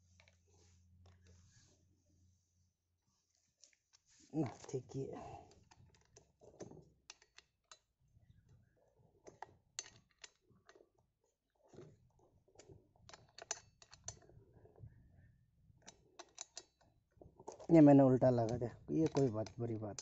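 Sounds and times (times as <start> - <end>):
metal clicks and taps: 5.6 - 7.9, 13.0 - 14.3, 15.8 - 16.8, 18.4 - 20.0.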